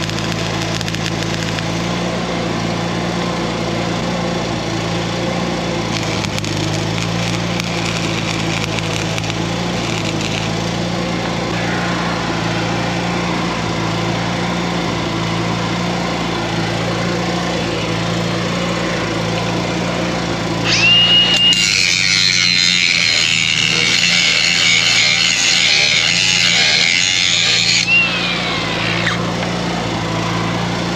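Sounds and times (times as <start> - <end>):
arc welding crackle: 0.0 - 1.8, 5.9 - 10.6, 20.6 - 29.2
engine running: 0.0 - 30.9
angle grinder grinding: 5.9 - 10.6, 16.4 - 29.6.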